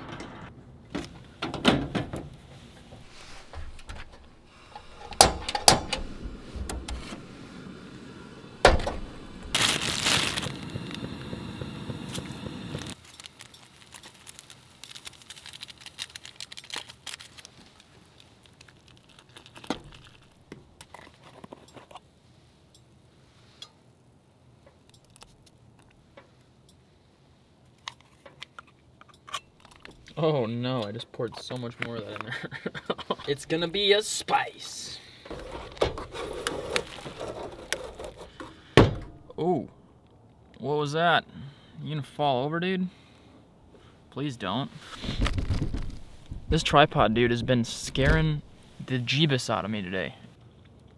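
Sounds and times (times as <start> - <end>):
loud hiss: 4.4 - 13.0
packet crinkling being torn open: 9.6 - 11.1, 12.8 - 21.6, 36.2 - 38.2.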